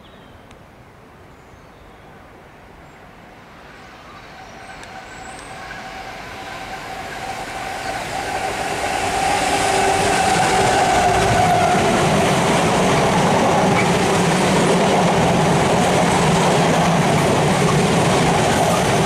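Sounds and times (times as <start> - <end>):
diesel locomotive engine drone: 3.4 - 19.0.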